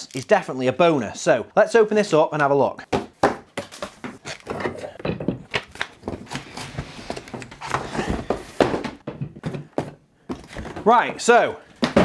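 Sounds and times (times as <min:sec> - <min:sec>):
knocks and thuds of parts: 0:02.9 - 0:06.3, 0:07.3 - 0:12.0
cardboard rustling and scraping: 0:05.6 - 0:10.9.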